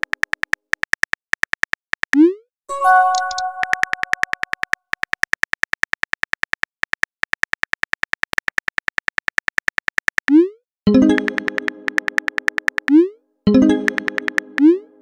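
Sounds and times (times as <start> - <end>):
synthetic keyboard typing clicks: 0.0 - 15.0
ringing chime: 2.7 - 3.8.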